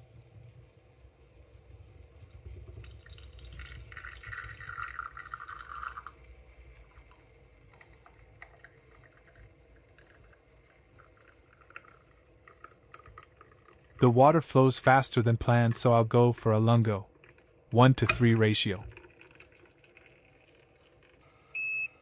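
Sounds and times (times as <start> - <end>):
faint drips and ticks: 0.0 - 14.2, 15.4 - 21.3
espresso pouring into glass: 1.9 - 14.1, 17.0 - 21.2.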